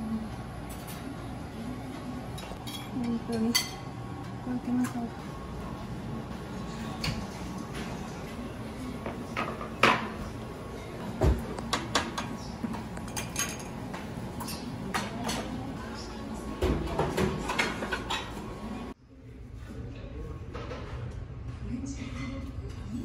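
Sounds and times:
faint voices of diners: 0.0 - 23.0
steady background hum: 0.0 - 23.0
dishes and cutlery clinking: 2.3 - 3.9, 11.2 - 18.8.

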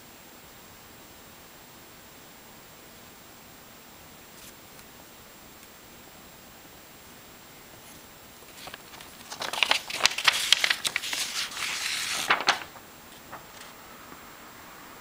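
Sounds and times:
paper sheet crinkling: 7.8 - 13.8.

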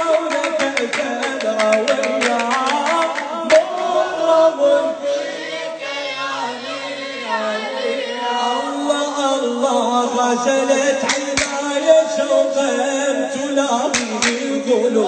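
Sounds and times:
rhythmic hand strikes: 0.0 - 4.0, 11.0 - 12.1, 13.4 - 14.7
men singing a religious chant: 0.0 - 15.0.

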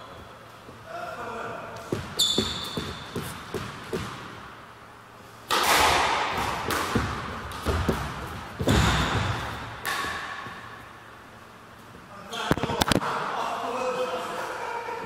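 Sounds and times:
squash ball hits: 5.5 - 10.8.

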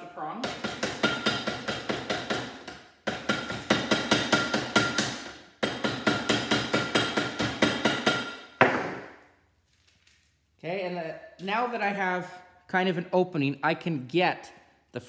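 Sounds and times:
hammer striking metal: 0.4 - 9.2.

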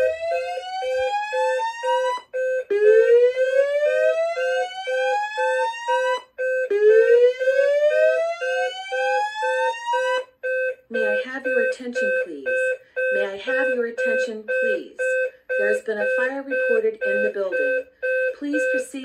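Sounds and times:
rapid beeping: 9.4 - 19.0.

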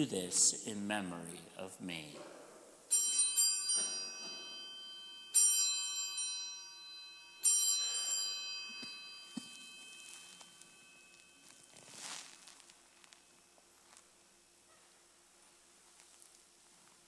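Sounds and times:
altar bells ringing: 2.9 - 12.6.

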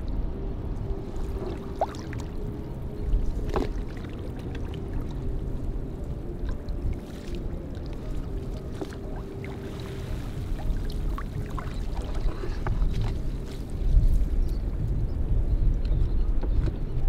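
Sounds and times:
low rumble: 0.0 - 17.0
water lapping and splashing: 1.0 - 14.4.

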